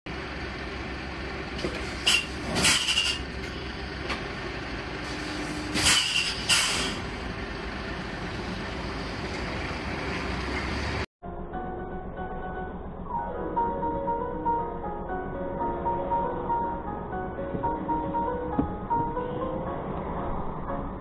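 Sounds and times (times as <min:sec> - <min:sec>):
truck engine rumbling: 0:00.1 - 0:21.0
air brake hisses: 0:05.0 - 0:07.1.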